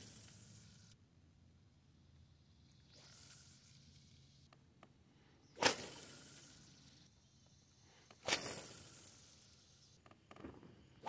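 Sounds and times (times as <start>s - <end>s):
line hissing off spool: 5.4s - 10.0s
fishing rod swish: 5.6s - 6.4s, 8.2s - 9.0s.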